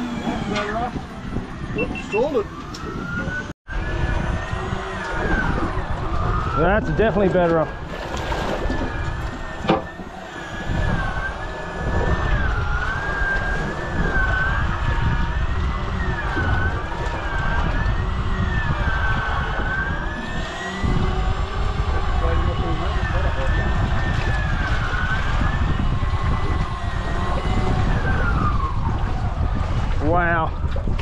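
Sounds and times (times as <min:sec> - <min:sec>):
fishing reel whine: 0:00.0 - 0:06.6, 0:07.9 - 0:29.1
wind rumble: 0:00.0 - 0:31.0.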